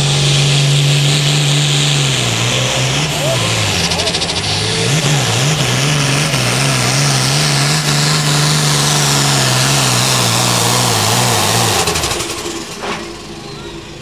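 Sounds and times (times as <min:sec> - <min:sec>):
tractor diesel engine droning: 0:00.0 - 0:14.0.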